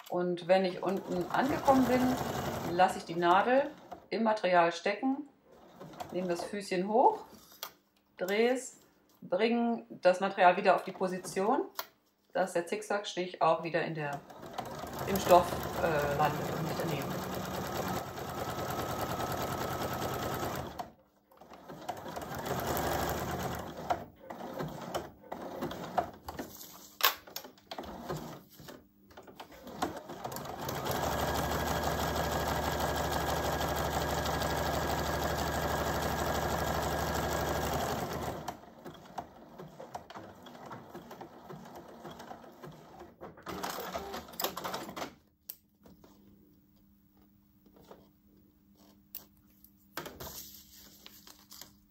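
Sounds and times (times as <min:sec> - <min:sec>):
sewing machine stitching: 0:00.0 - 0:04.1, 0:05.5 - 0:06.5, 0:14.1 - 0:26.5, 0:27.3 - 0:45.1.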